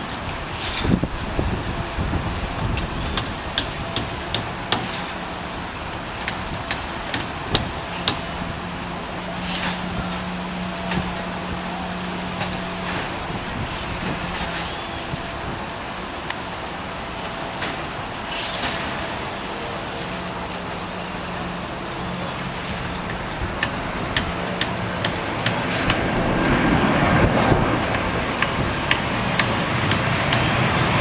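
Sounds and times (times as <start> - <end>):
wind on microphone: 0.0 - 4.7, 13.0 - 15.9, 22.7 - 31.0
road traffic: 0.0 - 31.0.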